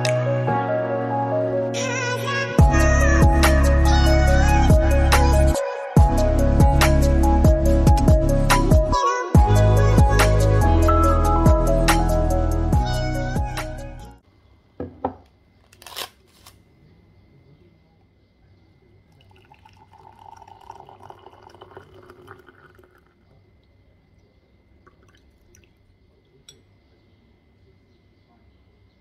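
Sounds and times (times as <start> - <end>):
background music: 0.0 - 14.2
water poured into ceramic mug: 19.1 - 23.3, 24.8 - 25.8.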